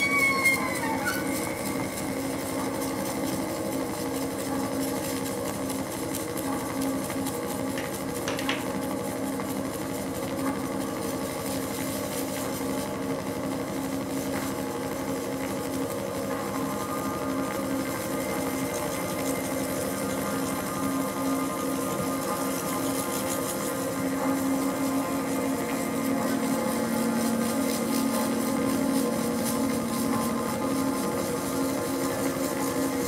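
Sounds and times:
bending synth tone: 0:00.0 - 0:02.6
ambient synthesizer drone music: 0:00.0 - 0:03.5.

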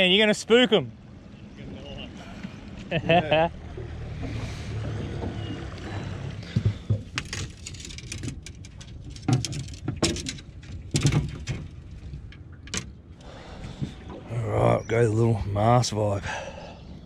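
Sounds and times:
fishing rods rattling: 0:06.1 - 0:12.9.

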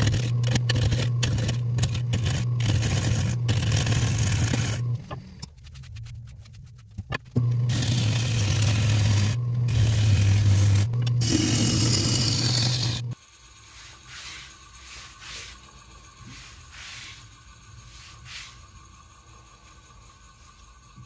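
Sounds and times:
wood lathe motor hum: 0:00.0 - 0:05.0, 0:07.4 - 0:13.2
rubbing and handling wood: 0:00.0 - 0:18.9
turning tool scraping wood: 0:00.0 - 0:21.0.

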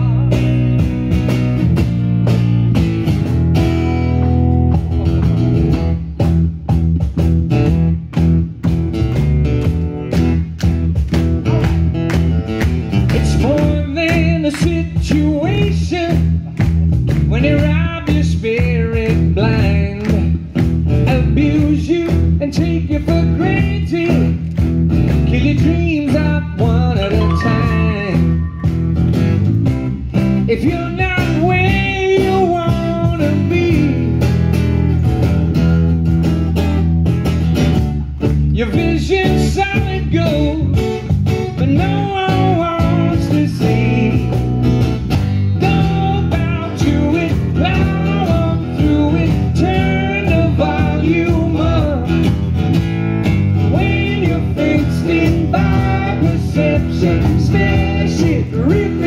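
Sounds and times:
man singing: 0:00.0 - 0:00.6, 0:13.1 - 0:16.4, 0:17.2 - 0:20.4, 0:21.0 - 0:24.4, 0:25.2 - 0:28.8, 0:30.4 - 0:34.2, 0:38.5 - 0:40.8, 0:41.5 - 0:44.5, 0:45.5 - 0:52.3, 0:53.6 - 0:59.0
acoustic guitars strumming: 0:00.0 - 0:59.0.

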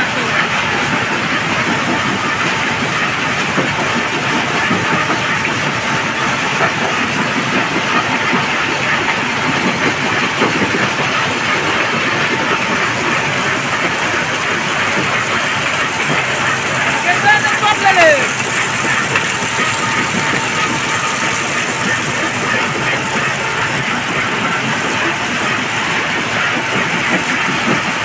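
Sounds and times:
conveyor belts running: 0:00.0 - 0:28.0
stone crusher rattle and rumble: 0:00.1 - 0:28.0.

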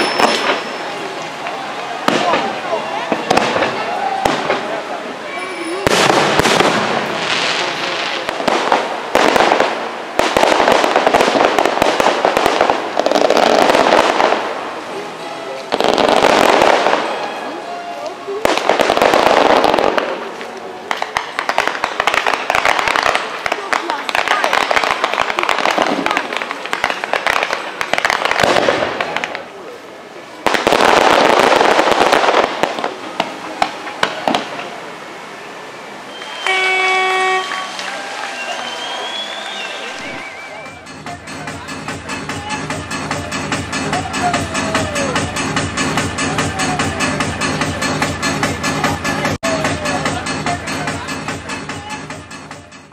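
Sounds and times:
firework shells booming: 0:00.0 - 0:00.9, 0:02.0 - 0:04.8, 0:05.8 - 0:14.8, 0:15.7 - 0:17.3, 0:18.5 - 0:29.5
rapid firework crackling: 0:00.0 - 0:05.0, 0:05.8 - 0:15.0, 0:15.7 - 0:17.3, 0:18.3 - 0:34.8.

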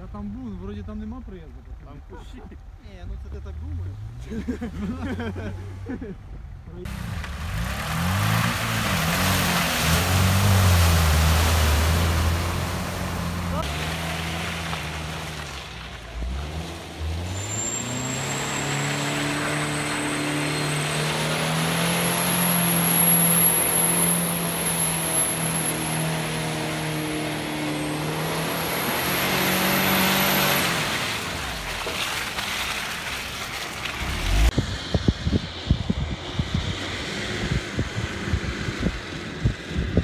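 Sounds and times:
car engine revving: 0:06.8 - 0:35.0
tyres spinning on dirt: 0:12.3 - 0:24.0, 0:28.8 - 0:34.6.

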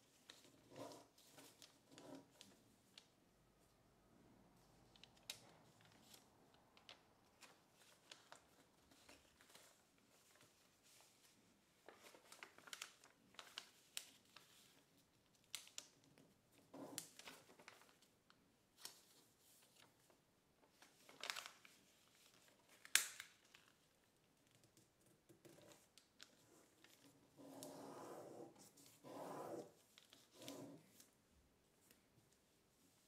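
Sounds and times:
paper rustling and crinkling: 0:00.0 - 0:03.2, 0:04.8 - 0:24.7, 0:25.4 - 0:27.8, 0:28.5 - 0:31.2
paper crackles: 0:04.9 - 0:24.7.

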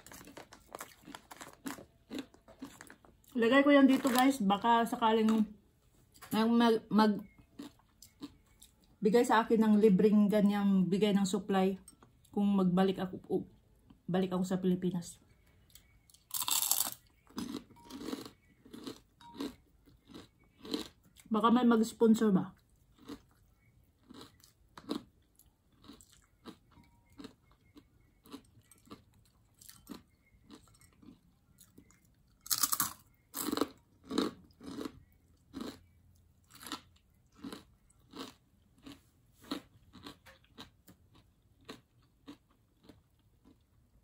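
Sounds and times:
chewing crunchy fried food: 0:00.0 - 0:04.4, 0:07.2 - 0:09.0, 0:15.3 - 0:21.4, 0:22.5 - 0:44.0.

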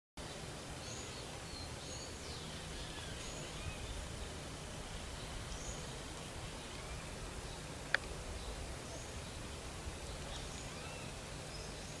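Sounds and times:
faint bird chirps: 0:00.2 - 0:12.0
outdoor background hiss: 0:00.2 - 0:12.0.

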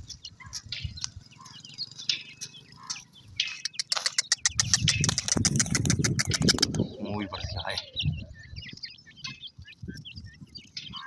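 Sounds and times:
chicks peeping: 0:00.0 - 0:11.0.

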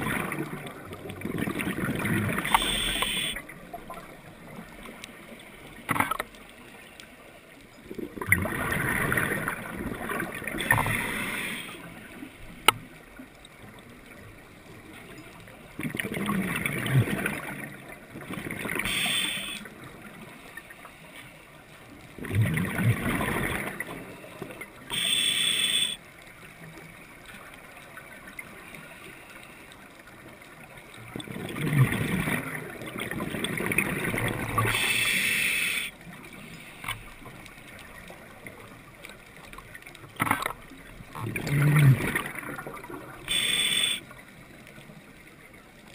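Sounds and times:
exhaled bubbles gurgling underwater: 0:00.0 - 0:20.9, 0:21.6 - 0:29.2, 0:29.8 - 0:45.9
quiet water noise: 0:00.0 - 0:45.9
regulator hiss: 0:02.5 - 0:03.4, 0:18.8 - 0:19.6, 0:24.9 - 0:26.0, 0:34.7 - 0:35.9, 0:43.3 - 0:44.1.

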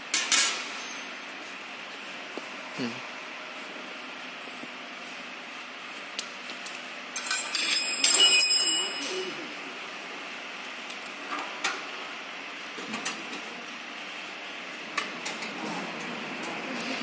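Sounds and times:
metal tools clinking and rattling: 0:07.2 - 0:09.3.

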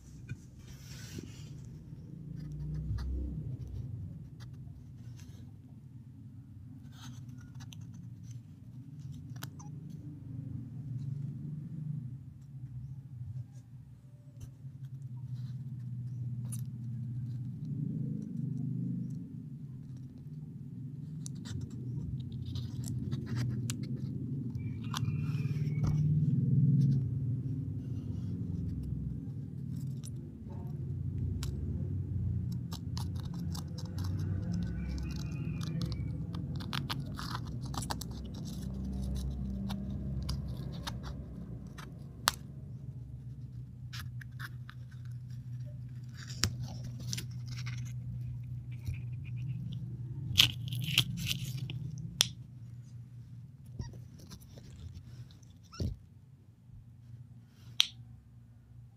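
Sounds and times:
low steady hum: 0:00.0 - 0:58.9
eggshell crunching and cracking: 0:31.2 - 0:52.5.

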